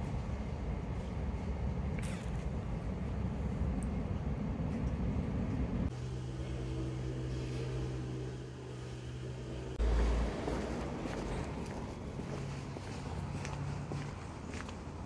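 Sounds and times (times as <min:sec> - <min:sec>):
low electric hum: 0:00.0 - 0:12.2
low rumble of moving train: 0:00.0 - 0:15.0
loud low buffeting: 0:02.8 - 0:14.5.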